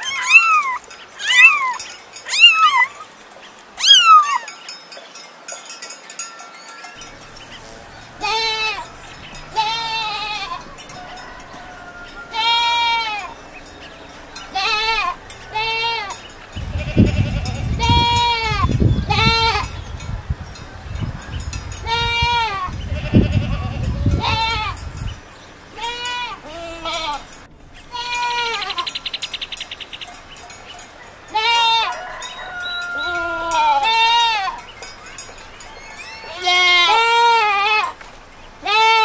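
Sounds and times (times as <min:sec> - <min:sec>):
goats bleating: 0:07.0 - 0:19.7, 0:21.8 - 0:24.8, 0:25.8 - 0:29.0, 0:31.3 - 0:32.0, 0:32.6 - 0:34.6, 0:36.1 - 0:38.0, 0:38.6 - 0:39.0.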